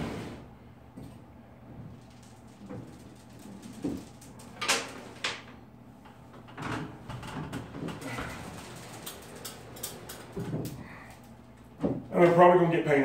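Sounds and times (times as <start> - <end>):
wooden cabinet scraping: 0.0 - 0.5
wooden cabinet knocking: 11.8 - 12.1.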